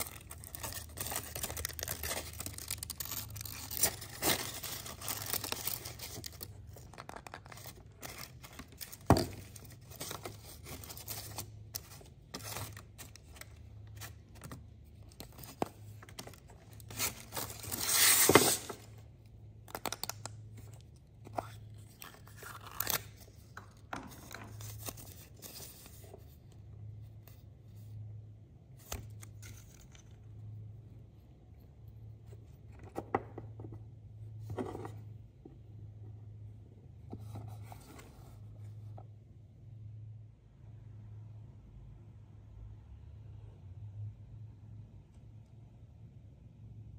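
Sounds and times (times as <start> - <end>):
foil wrapper crinkling and tearing: 0.0 - 9.0, 22.0 - 23.2.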